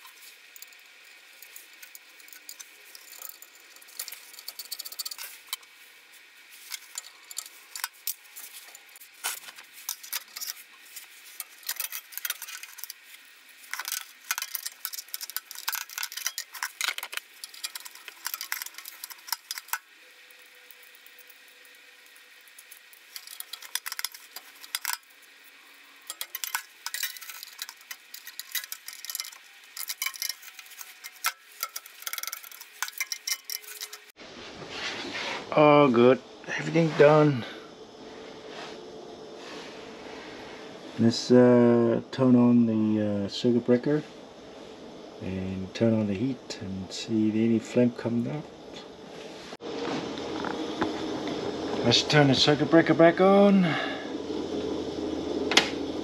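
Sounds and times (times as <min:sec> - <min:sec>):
metal clicks clinks and scraping: 0:00.0 - 0:05.7, 0:06.6 - 0:34.2.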